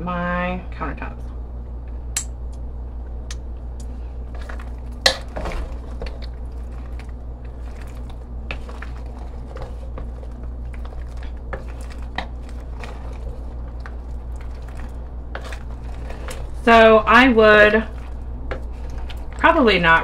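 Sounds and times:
steady low hum: 0.0 - 20.0
wooden spatula stirring pasta: 4.2 - 20.0
spatula scraping and knocking pot: 4.3 - 19.6.

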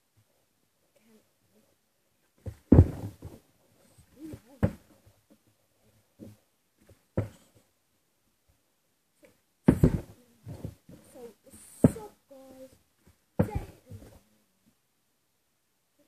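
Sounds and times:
plastic bottle thumping on landing: 2.4 - 3.4, 9.7 - 10.8.

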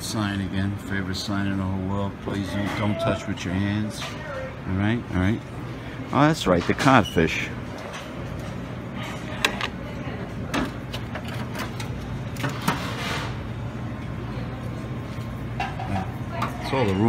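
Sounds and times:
dining room background hum: 0.0 - 17.0.

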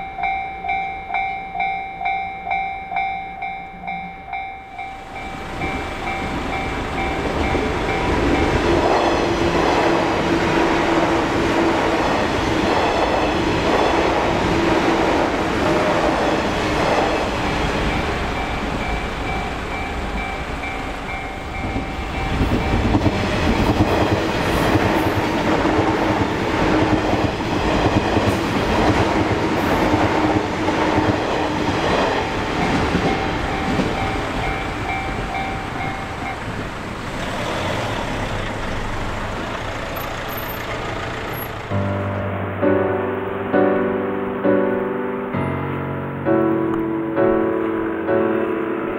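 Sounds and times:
level crossing bell dinging: 0.0 - 8.6, 17.1 - 23.1, 32.6 - 36.6
train rumble: 0.0 - 42.3
wheels clattering over rail joints: 5.5 - 41.8.

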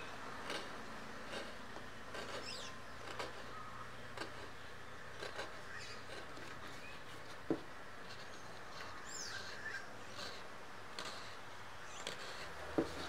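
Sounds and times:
carving tool scratching gourd: 0.0 - 13.0
bird chirp: 2.4 - 4.7, 8.3 - 10.4.

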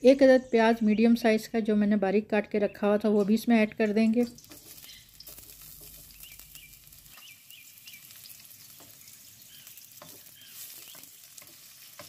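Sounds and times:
onions sizzling in hot oil: 4.2 - 12.0
sharp crackles: 4.2 - 12.0
spatula stirring in wok: 4.4 - 12.0.

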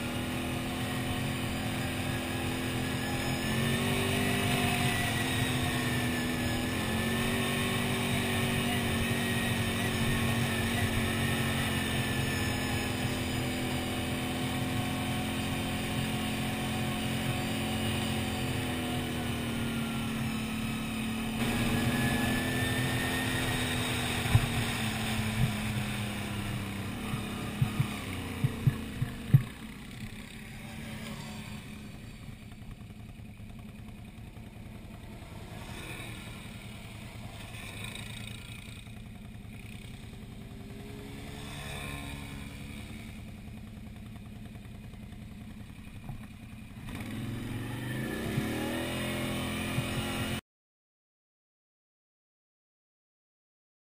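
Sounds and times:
quad bike engine running: 0.0 - 50.4
sharp knocks: 27.1 - 29.6.

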